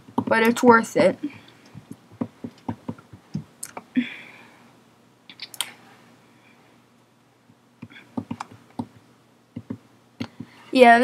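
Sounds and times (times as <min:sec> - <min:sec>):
computer keyboard typing: 0:08.2 - 0:09.0.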